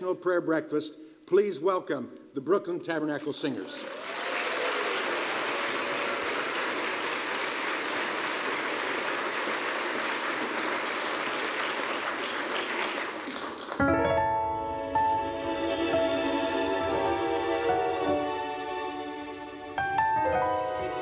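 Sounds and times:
audience applause: 3.6 - 13.8
music held chord: 13.8 - 21.0.

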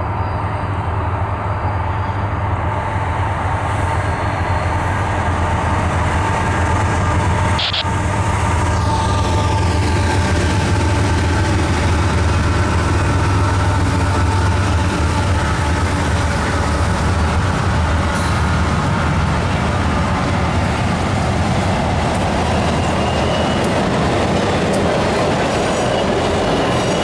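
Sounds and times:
locomotive engine drone: 0.0 - 27.0
rail noise: 0.0 - 27.0
high whine: 7.6 - 7.9.

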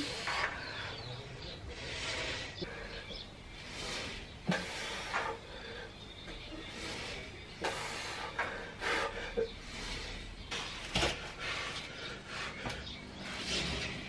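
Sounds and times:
forceful breaths of effort: 6.6 - 14.0.

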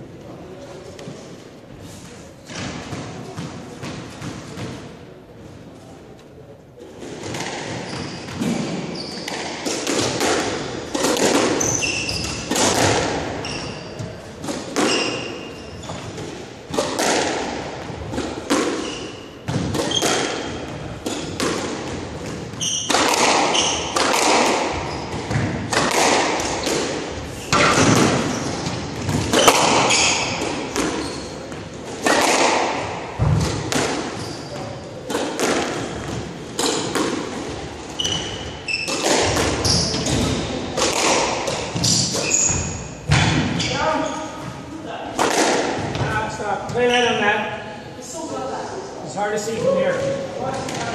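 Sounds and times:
squash ball hitting racquets and walls: 0.8 - 5.2, 6.8 - 47.2, 49.4 - 50.9
shoes squeaking on hardwood floor: 7.7 - 9.7, 10.6 - 12.7, 13.4 - 16.3, 18.8 - 21.4, 22.0 - 24.0, 24.7 - 25.4, 26.4 - 31.8, 34.0 - 35.1, 37.8 - 40.6, 41.5 - 44.7, 45.9 - 47.4.

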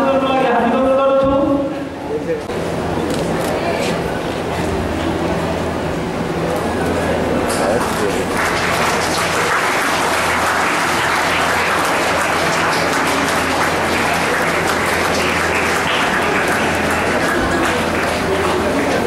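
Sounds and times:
audience applauding: 7.7 - 19.0.

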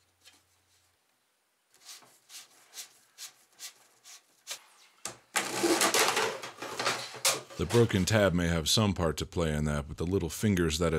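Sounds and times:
plastic hose rattling rasp: 5.4 - 7.9.

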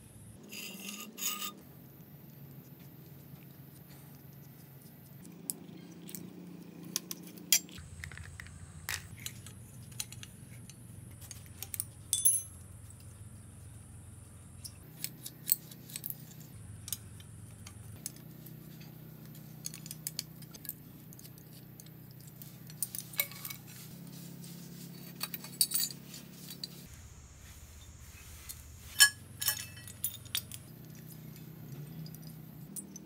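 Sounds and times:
spanner clinking on bolts: 11.4 - 12.7, 22.7 - 23.7, 29.0 - 33.0.

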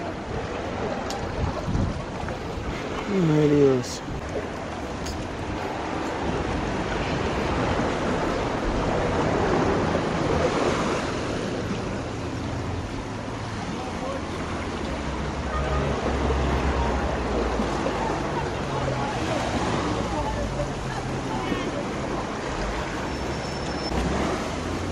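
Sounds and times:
wind buffeting microphone: 0.0 - 3.1
waves washing against rocks: 0.0 - 24.9.

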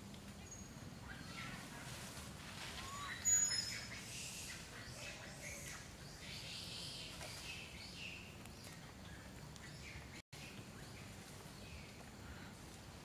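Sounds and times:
faint high chirping calls: 2.8 - 12.4.

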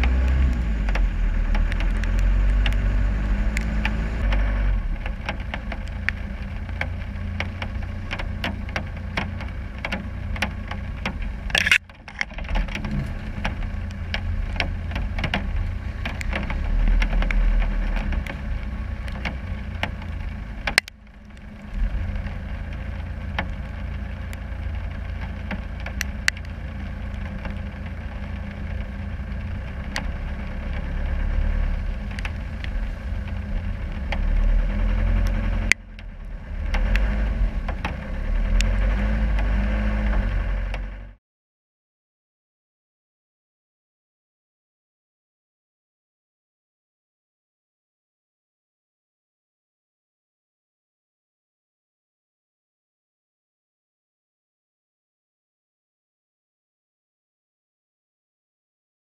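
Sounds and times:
diesel engine running at low revs: 0.0 - 41.2.

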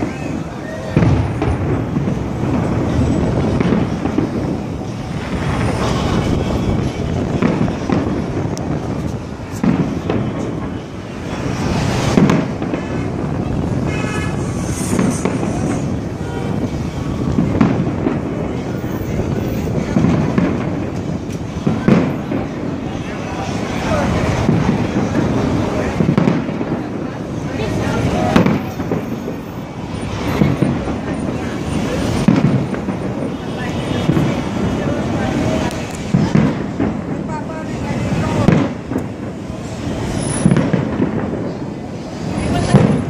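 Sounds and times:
fireworks booming and crackling: 0.0 - 43.0.

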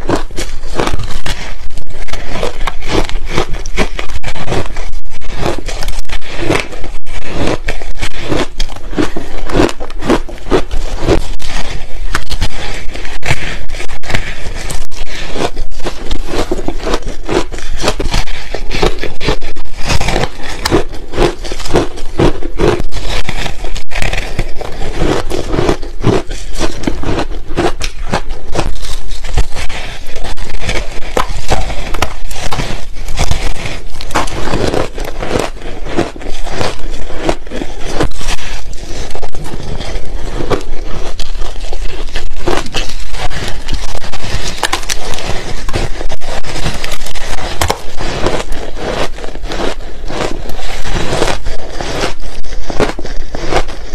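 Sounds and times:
frozen ice being chewed: 0.0 - 53.9.

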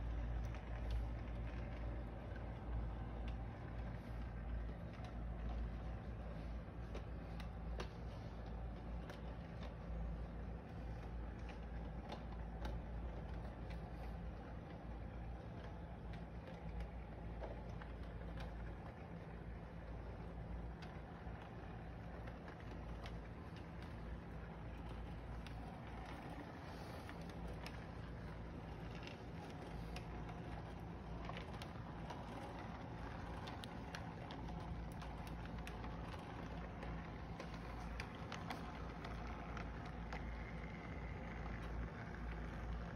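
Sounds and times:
model train humming and rumbling: 0.0 - 42.9.

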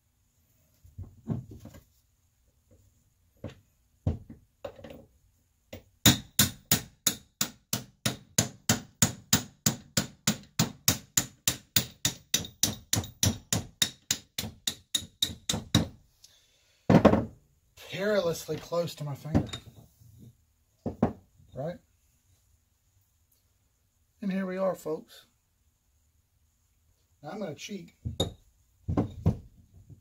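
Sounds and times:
hammer tapping on metal: 5.7 - 15.9.

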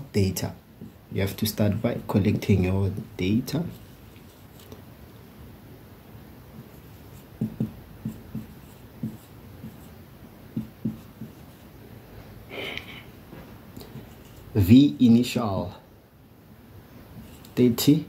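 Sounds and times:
marker pen tapping on whiteboard: 6.6 - 9.9, 10.5 - 11.4.

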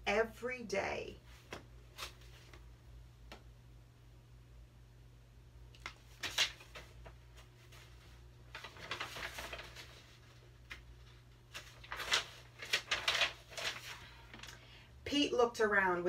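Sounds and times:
book pages rustling: 1.3 - 2.7, 5.8 - 14.5.

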